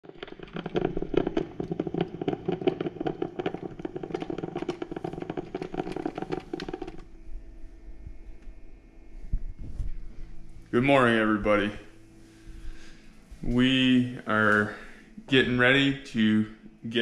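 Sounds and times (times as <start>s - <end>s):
coffee maker sputtering and gurgling: 0.0s - 8.9s
faint steady hum: 0.1s - 17.0s.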